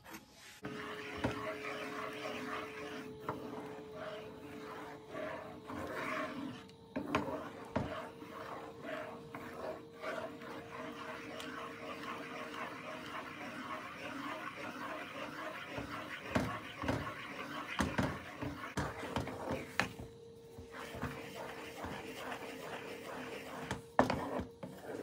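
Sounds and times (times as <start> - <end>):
faint hum: 0.0 - 25.0
spatula stirring bubbling mixture: 0.6 - 25.0.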